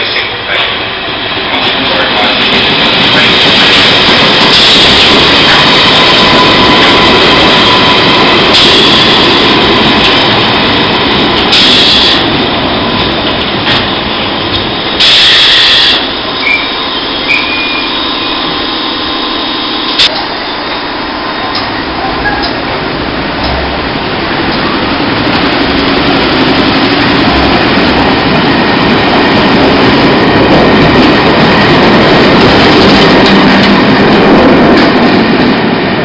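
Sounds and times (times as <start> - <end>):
train wheels rumbling on rails: 0.0 - 36.0
wheel squeals: 15.1 - 18.3.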